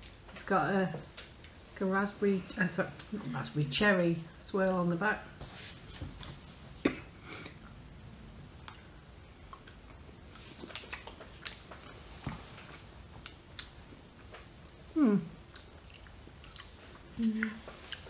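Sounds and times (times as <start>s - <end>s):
mouth clicks and smacks: 8.6s - 11.9s, 15.4s - 18.0s
quiet chewing: 8.6s - 18.0s.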